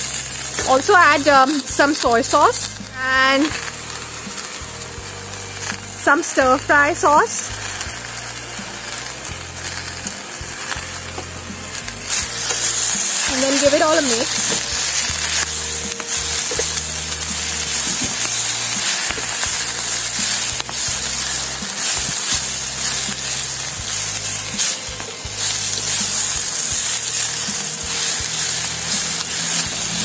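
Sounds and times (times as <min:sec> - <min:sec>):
vegetables sizzling in a pan: 0:00.0 - 0:30.0
wooden spatula scraping a pan: 0:10.6 - 0:30.0.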